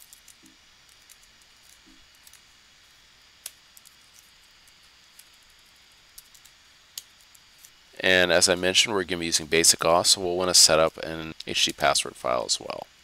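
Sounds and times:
low steady hiss: 0:00.0 - 0:13.0.

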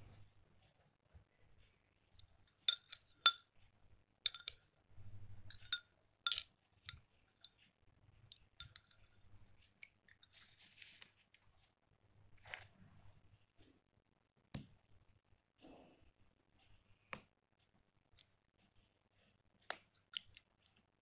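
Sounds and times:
spoon clinking against glass: 0:02.6 - 0:03.5, 0:04.3 - 0:04.6, 0:05.5 - 0:07.0.

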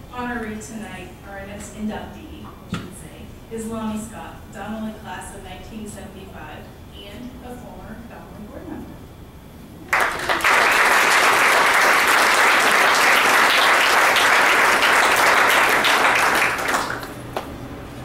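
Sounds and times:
audience clapping: 0:09.9 - 0:17.5.

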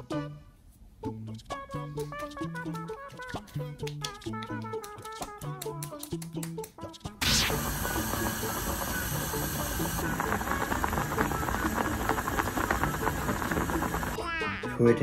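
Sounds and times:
rice boiling in a pot: 0:07.2 - 0:14.2.

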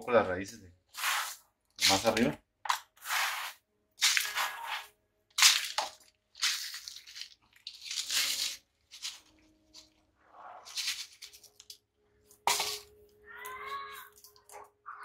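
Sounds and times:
gritty soil pouring into pot: 0:01.0 - 0:02.3, 0:03.0 - 0:04.9.

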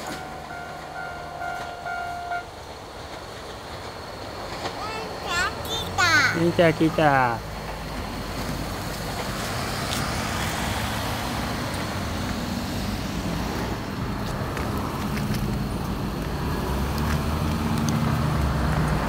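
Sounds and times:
motor vehicles passing: 0:03.9 - 0:19.0.

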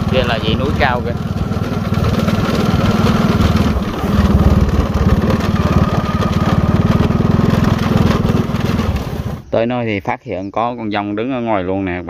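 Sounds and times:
motorcycle engine running: 0:00.0 - 0:09.5.

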